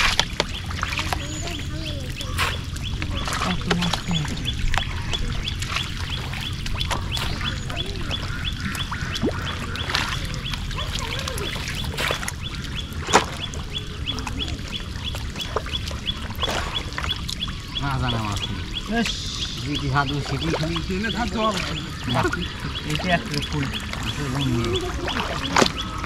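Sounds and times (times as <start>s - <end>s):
splashing in shallow muddy water: 0.0s - 26.0s
steady low rumble: 0.0s - 26.0s
regular high ticking: 12.2s - 26.0s.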